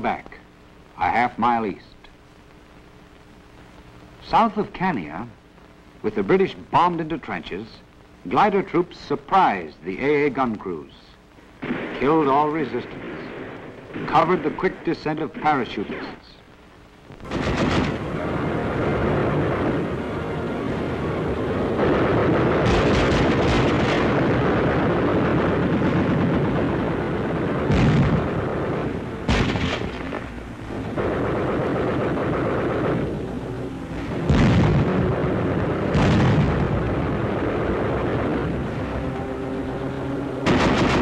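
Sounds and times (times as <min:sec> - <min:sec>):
explosions: 0:11.6 - 0:16.1, 0:17.2 - 0:41.0
gunfire: 0:17.2 - 0:19.9, 0:21.8 - 0:41.0
sharp single bangs: 0:27.6 - 0:41.0.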